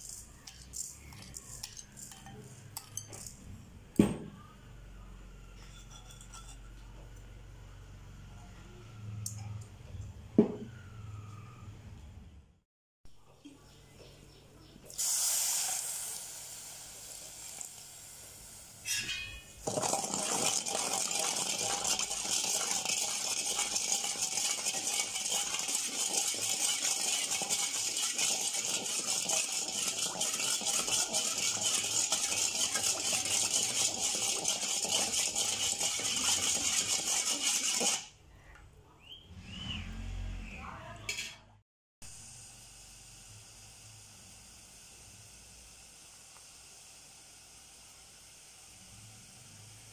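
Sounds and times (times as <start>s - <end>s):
metal spoon scraping a pot: 0.0s - 3.4s, 5.5s - 7.1s, 18.8s - 38.1s
water poured into pot: 19.6s - 38.1s.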